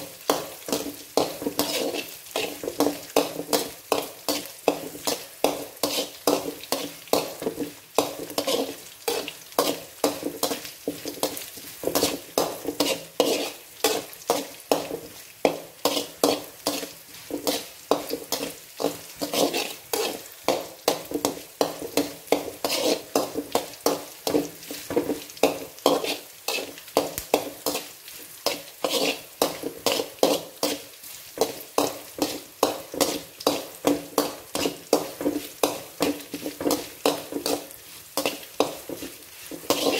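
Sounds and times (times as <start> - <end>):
food sizzling in hot oil: 0.0 - 39.9
metal spatula scraping metal pan: 0.0 - 39.9.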